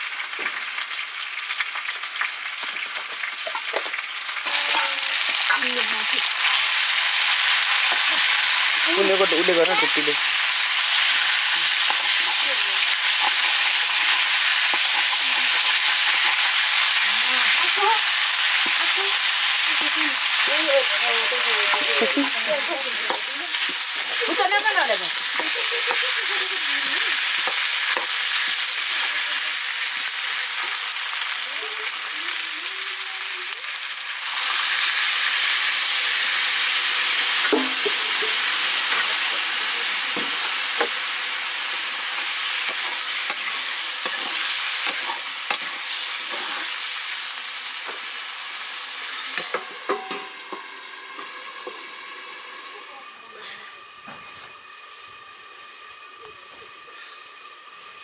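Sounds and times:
vegetables sizzling in hot oil: 0.0s - 58.0s
metal ladle scraping a wok: 42.1s - 46.8s.

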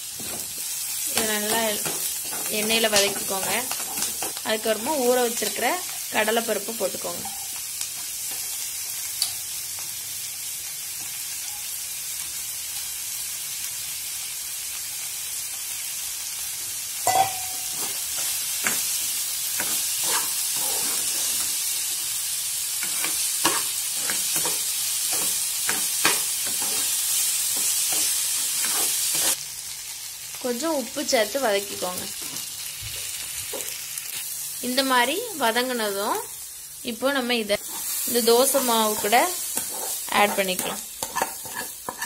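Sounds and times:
food sizzling in hot oil: 0.0s - 42.0s
metal spatula scraping a pan: 19.6s - 21.6s, 22.8s - 27.0s, 27.6s - 29.4s, 37.6s - 42.0s.

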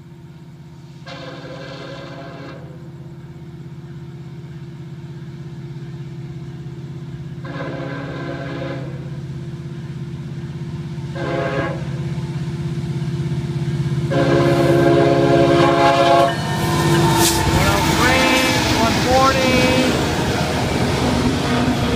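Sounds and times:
train rumble: 0.0s - 21.9s
locomotive horn blasts: 1.0s - 2.8s, 7.4s - 9.1s, 11.1s - 12.0s, 14.1s - 20.1s.

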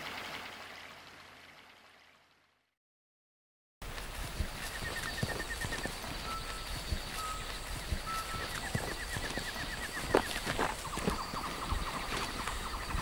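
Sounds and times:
footsteps through tall grass: 3.8s - 13.0s
songbirds trilling and whistling: 3.9s - 13.0s.

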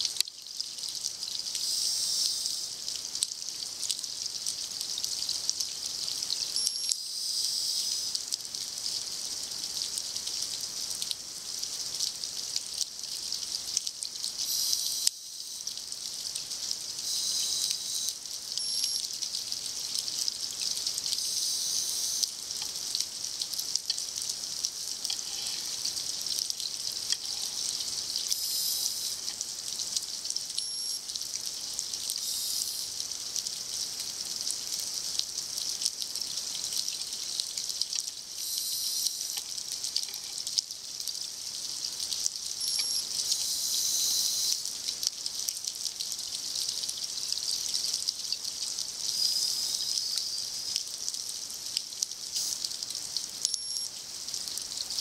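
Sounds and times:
steady fine crackle: 24.9s - 26.2s.

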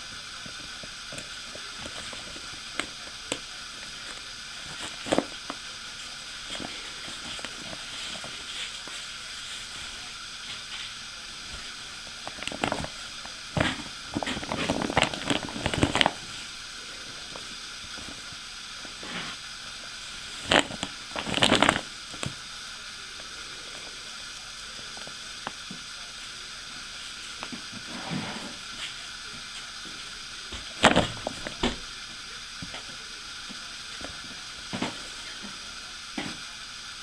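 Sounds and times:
steady hiss: 0.0s - 37.0s
plastic bag crinkling: 12.2s - 16.5s, 20.3s - 22.3s.

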